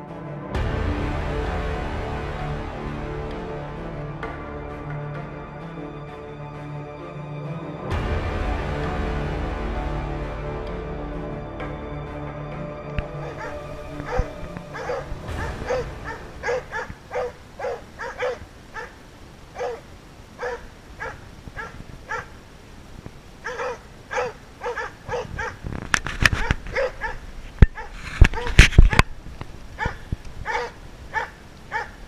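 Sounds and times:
dog barking: 13.2s - 22.3s, 23.4s - 25.6s, 26.4s - 28.6s, 29.8s - 32.0s
rustling: 13.2s - 32.0s.

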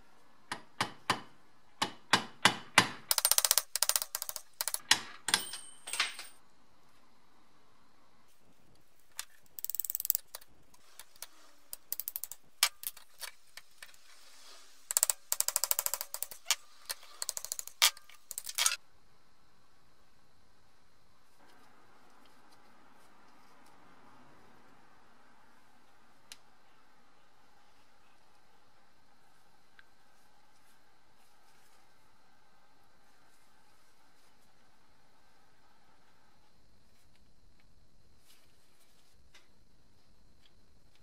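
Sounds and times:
hammer tapping metal punch: 0.5s - 6.3s
rapid metallic clicking: 3.1s - 5.0s, 9.5s - 13.1s, 14.9s - 18.8s.

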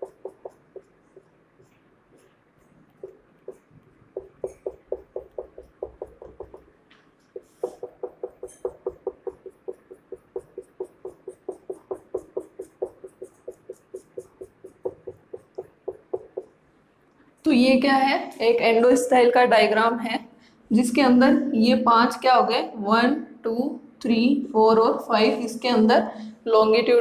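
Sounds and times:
marker tapping on whiteboard: 0.0s - 16.6s.

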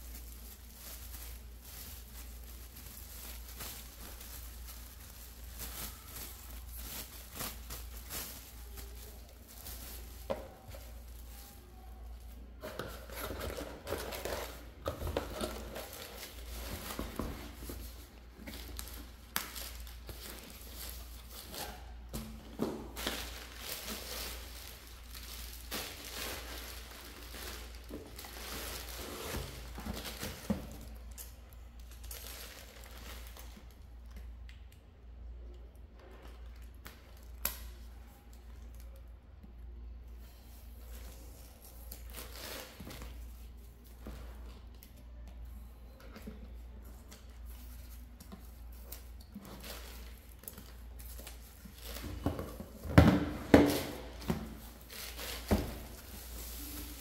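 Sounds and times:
plastic packaging crinkling: 0.0s - 33.8s.

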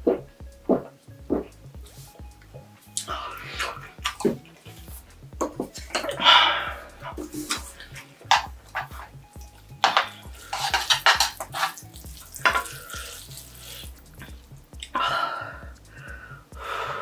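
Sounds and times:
utensils clicking against pan: 5.5s - 13.2s
stirring sticky noodles in pan: 9.8s - 14.4s.

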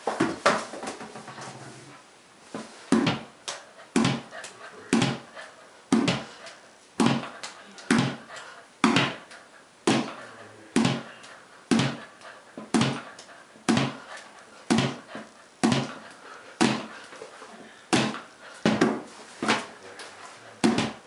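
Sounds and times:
ball bouncing on hard floor: 0.0s - 1.3s, 2.6s - 3.3s, 4.0s - 4.3s, 4.9s - 5.3s, 5.9s - 6.3s, 7.0s - 9.3s, 9.9s - 10.2s, 10.8s - 11.1s, 11.7s - 14.1s, 14.7s - 17.0s, 17.9s - 19.7s, 20.6s - 21.0s.

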